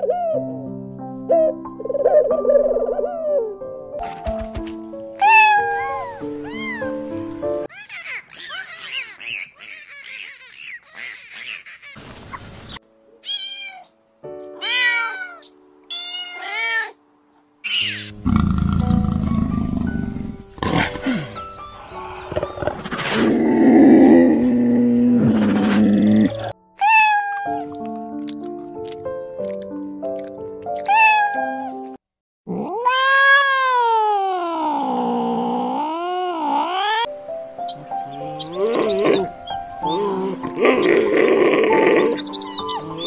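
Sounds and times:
background music: 0.0 - 7.7, 12.8 - 32.0, 37.1 - 43.0
cats meowing: 5.2 - 7.0, 13.2 - 14.0, 14.6 - 17.0, 25.3 - 27.6, 30.8 - 31.8, 32.5 - 37.1.

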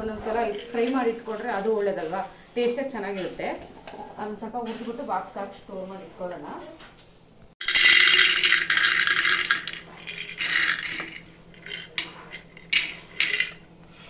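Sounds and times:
almonds clattering in a pan: 7.6 - 13.6.

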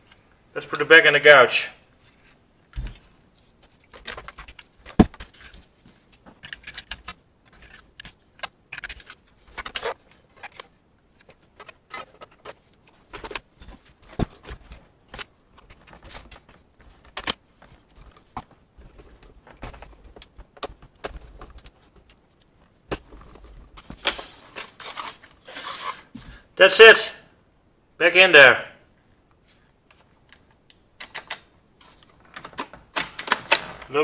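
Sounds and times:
soft rustling: 1.8 - 26.5, 29.0 - 30.7
plastic parts clicking and tapping: 2.7 - 24.7, 29.9 - 33.9.

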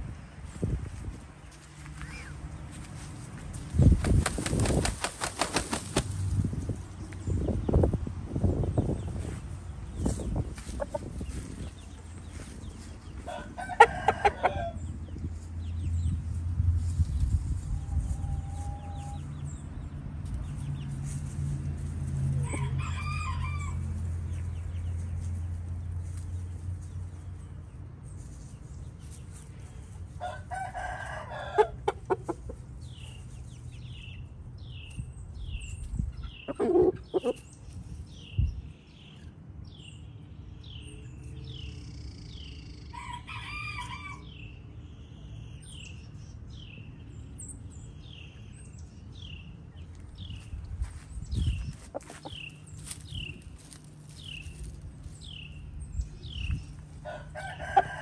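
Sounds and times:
roosters crowing: 13.0 - 15.0, 22.3 - 24.6, 30.1 - 32.2, 42.7 - 44.6, 56.9 - 58.0.

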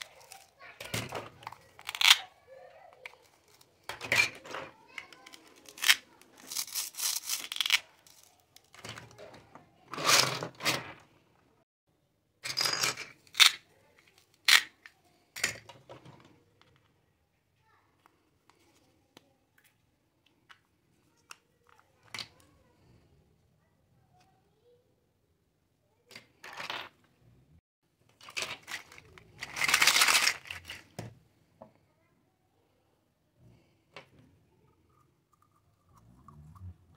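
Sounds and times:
plastic toys rustling and clattering: 0.0 - 11.2, 12.4 - 17.0, 26.1 - 27.1, 28.0 - 31.2
plastic toys scraping on a table: 3.1 - 11.2.

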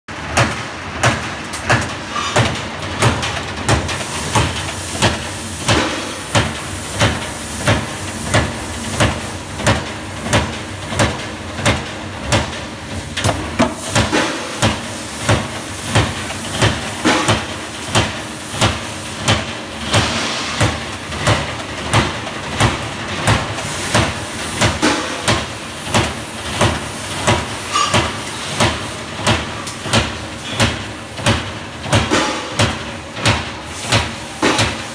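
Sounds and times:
machine hiss: 3.8 - 9.6, 13.6 - 34.9.

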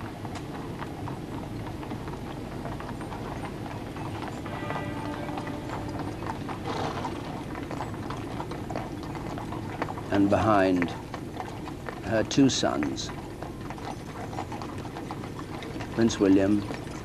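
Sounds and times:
horse hooves clip-clopping on road: 0.0 - 17.0
brief ringing tone: 4.4 - 7.2.

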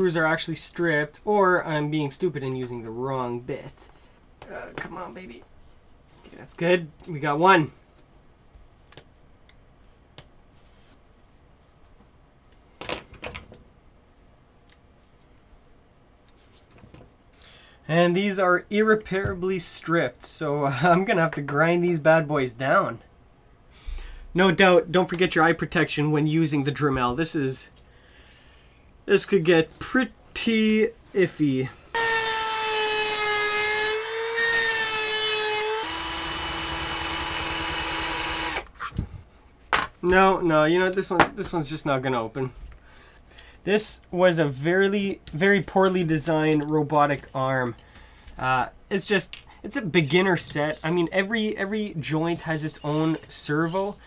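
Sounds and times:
cordless drill running: 32.0 - 38.7
rotary tool grinding whine: 32.0 - 38.7.

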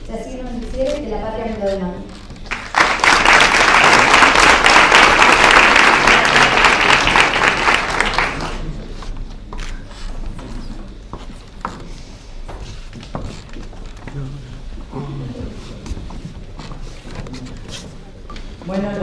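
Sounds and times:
audience applauding: 2.4 - 8.8.

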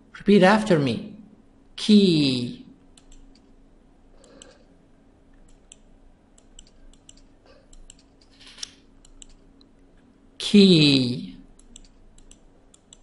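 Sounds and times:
low steady hum: 0.0 - 13.0
mouse and keyboard clicks: 3.0 - 3.5, 4.2 - 4.7, 5.4 - 9.7, 11.6 - 13.0.

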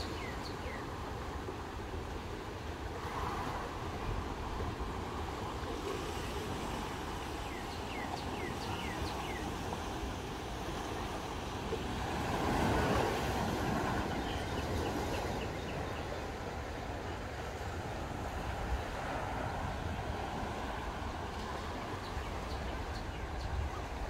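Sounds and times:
ocean surf washing on shore: 0.0 - 24.0
wind buffeting microphone: 2.7 - 24.0
bird chirping: 7.4 - 9.5.

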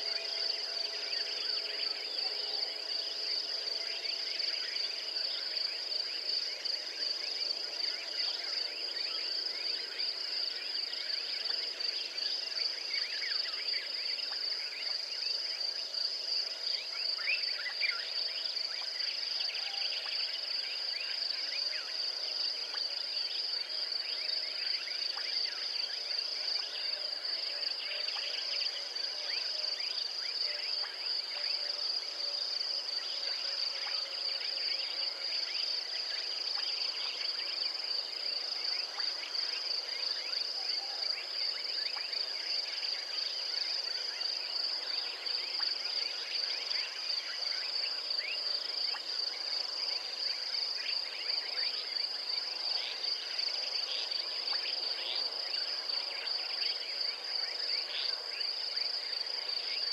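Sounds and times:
insects trilling: 0.0 - 59.9
insect chirps and clicks: 18.6 - 22.1, 28.1 - 59.9.

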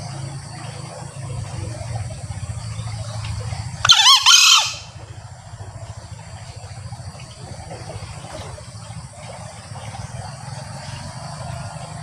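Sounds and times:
junglefowl crowing: 3.8 - 5.0.

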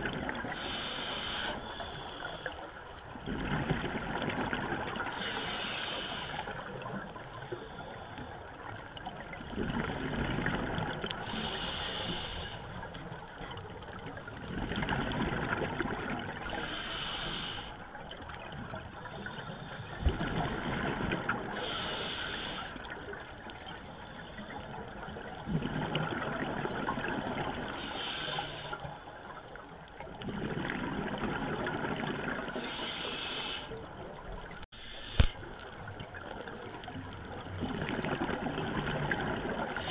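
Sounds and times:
regulator hissing on inhale: 0.4 - 2.8, 5.1 - 8.5, 11.2 - 13.0, 16.4 - 18.0, 19.1 - 20.3, 21.5 - 23.0, 27.6 - 29.6, 32.5 - 33.9, 34.7 - 35.7, 39.6 - 39.9
exhaled air bubbling: 3.1 - 5.2, 9.2 - 11.6, 13.4 - 16.8, 24.6 - 27.8, 30.1 - 39.9.

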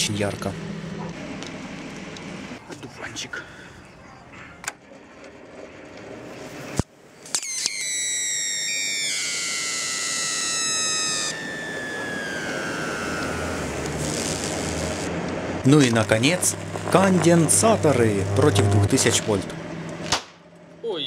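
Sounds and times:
squealing multi-tone whistle: 7.4 - 14.8
electric current sharp snaps: 12.5 - 15.1.

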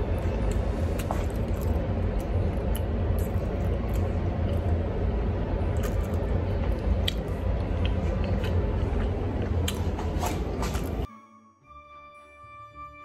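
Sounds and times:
low rumble: 0.0 - 11.1
chewing with wet mouth clicks: 0.1 - 4.8, 5.7 - 10.4.

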